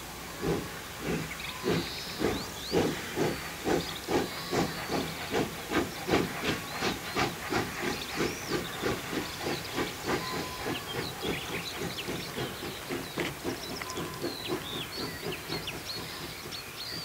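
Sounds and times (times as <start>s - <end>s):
steam locomotive exhaust chuffing: 0.0s - 17.0s.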